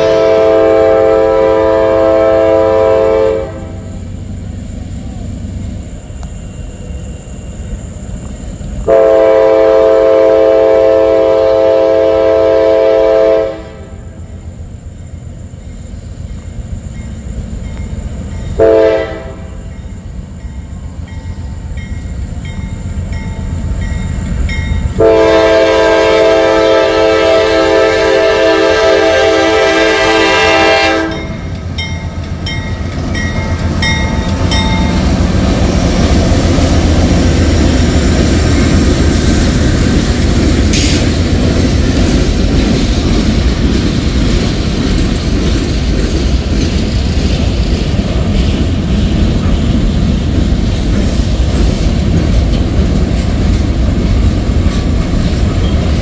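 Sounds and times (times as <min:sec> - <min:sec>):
locomotive air horn blasts: 0:00.0 - 0:04.0, 0:08.9 - 0:14.1, 0:18.6 - 0:19.7, 0:25.0 - 0:31.5
train engine rumble: 0:00.0 - 0:56.0.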